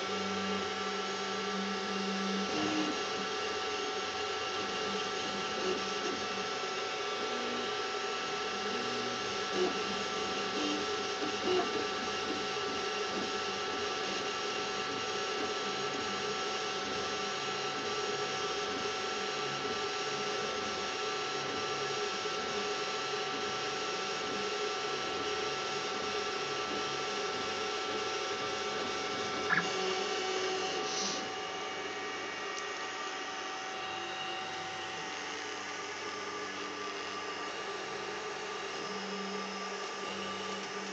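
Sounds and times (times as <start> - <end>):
printer fans and motors whirring: 0.0 - 40.9.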